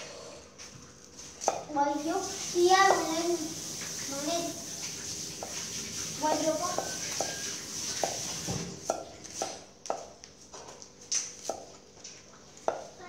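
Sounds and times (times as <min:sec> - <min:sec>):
knife chopping on wooden board: 0:08.0 - 0:10.2, 0:11.4 - 0:11.8.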